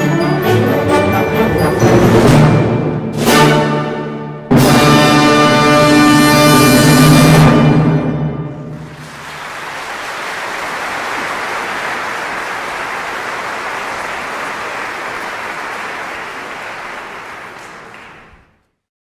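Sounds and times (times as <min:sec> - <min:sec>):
audience applauding: 0:08.7 - 0:18.6.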